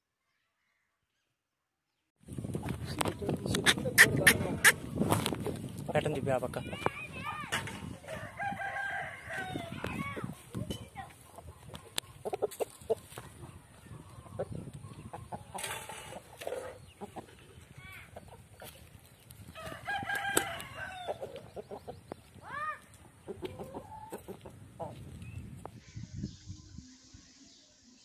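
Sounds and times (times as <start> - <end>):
roosters clucking: 2.4 - 25.8
rooster crowing: 8.0 - 9.8, 19.6 - 21.2.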